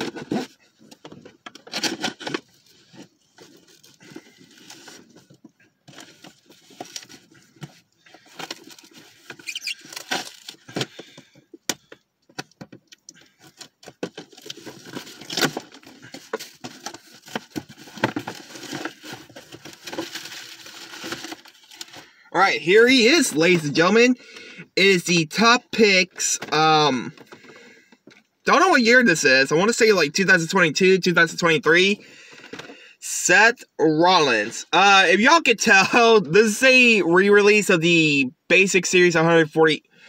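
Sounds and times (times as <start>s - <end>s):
cardboard package being opened: 0.0s - 11.2s, 13.2s - 22.2s.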